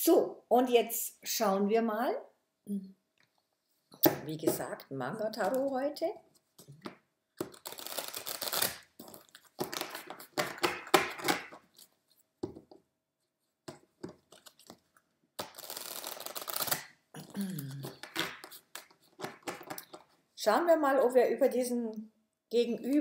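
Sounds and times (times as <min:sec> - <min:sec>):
cards riffle shuffling: 0:07.4 - 0:12.0, 0:13.7 - 0:16.9, 0:17.8 - 0:20.1.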